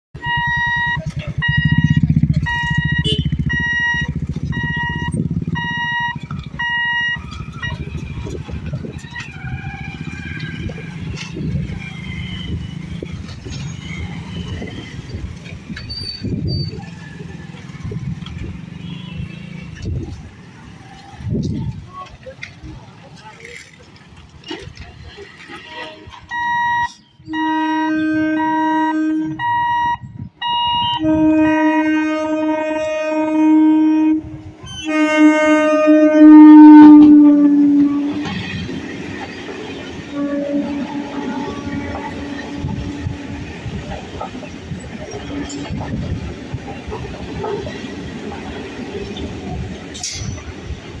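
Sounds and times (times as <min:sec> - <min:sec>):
motorcycle and scooter engines rumbling: 0:00.2 - 0:51.0
train coaches running over rails: 0:00.2 - 0:51.0
train horn blasts: 0:02.5 - 0:08.0, 0:25.9 - 0:38.6, 0:40.0 - 0:43.8, 0:45.1 - 0:46.3.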